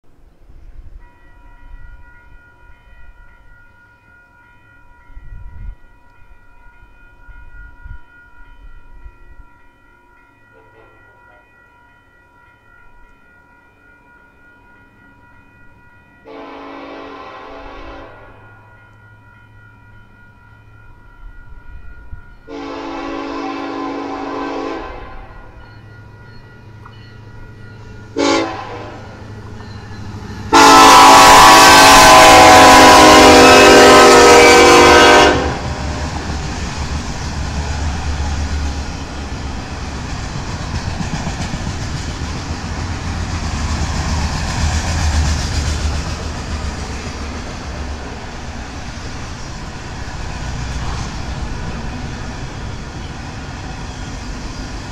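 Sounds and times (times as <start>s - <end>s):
train rumbling and clattering past: 0.1s - 54.9s
locomotive horn blasts: 16.3s - 18.4s, 22.5s - 25.4s, 28.2s - 29.2s, 30.5s - 36.0s.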